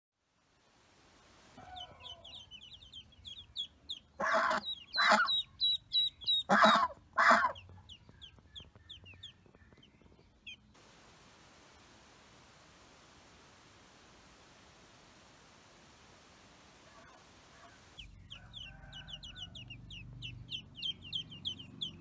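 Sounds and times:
faint steady hiss: 0.2 - 4.1, 7.0 - 19.3
ducklings peeping: 1.6 - 10.8, 16.9 - 22.0
goose calling harshly: 4.2 - 5.4, 6.3 - 7.6.

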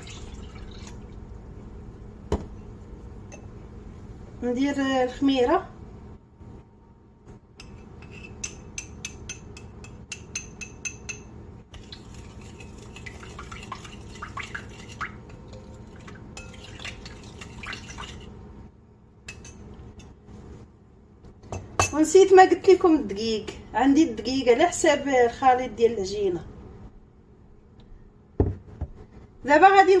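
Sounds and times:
metal spoon clinking on bowl: 7.6 - 11.3
spoon stirring and scraping: 7.6 - 18.3.

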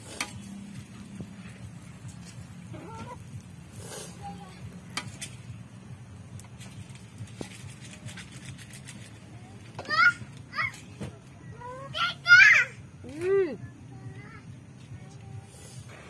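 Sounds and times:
metal spatula scraping a wok: 0.0 - 1.1, 6.5 - 9.3.

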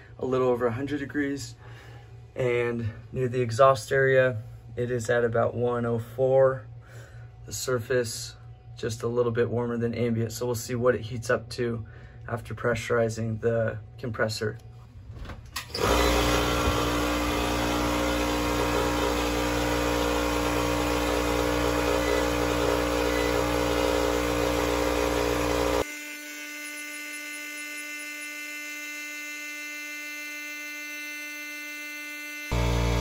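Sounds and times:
electric air compressor running: 15.6 - 33.0.

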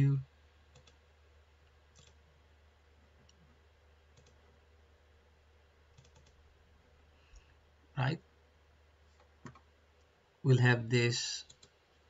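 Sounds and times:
computer mouse clicks: 0.7 - 1.0, 1.9 - 2.2, 4.1 - 4.4, 5.9 - 6.4, 9.2 - 10.1, 11.4 - 11.8.

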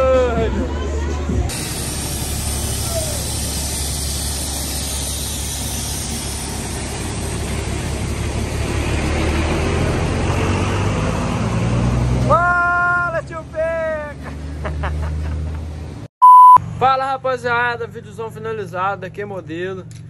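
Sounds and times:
road noise: 0.0 - 20.0
truck engine rumble: 0.0 - 20.0.

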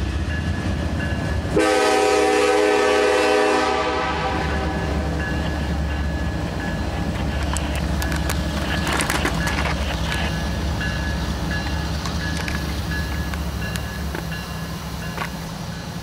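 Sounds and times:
diesel locomotives rumbling: 0.0 - 16.0
rustling noise: 7.0 - 10.8.

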